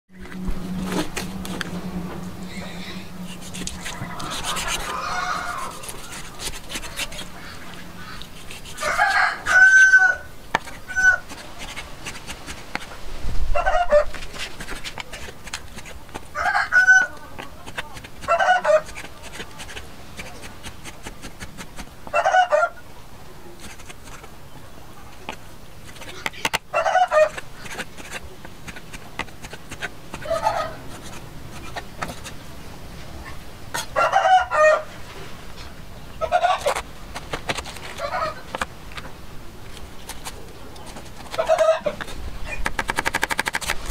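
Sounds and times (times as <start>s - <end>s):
chickens calling: 2.4s - 12.9s, 13.5s - 14.4s, 15.0s - 20.5s, 22.0s - 22.9s, 23.6s - 32.4s, 33.1s - 39.2s, 40.2s - 42.7s.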